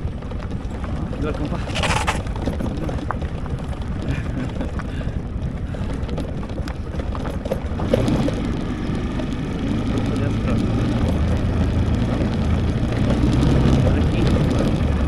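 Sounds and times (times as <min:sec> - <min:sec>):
wind noise on microphone: 0:00.0 - 0:09.6
knocks and rattles: 0:00.0 - 0:15.0
motorcycle engine running: 0:00.0 - 0:15.0.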